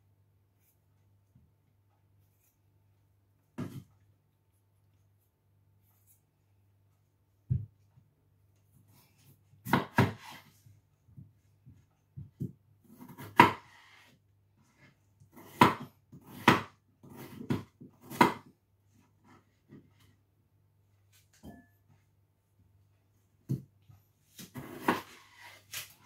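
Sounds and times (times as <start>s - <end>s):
knife chopping on wooden board: 9.6s - 10.5s, 12.2s - 14.1s, 15.3s - 18.5s, 24.4s - 25.6s.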